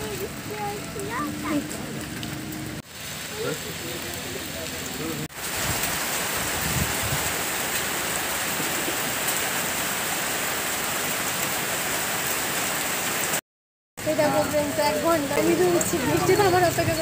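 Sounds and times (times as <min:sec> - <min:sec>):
heavy rain on a metal roof: 0:00.0 - 0:13.4, 0:14.0 - 0:17.0.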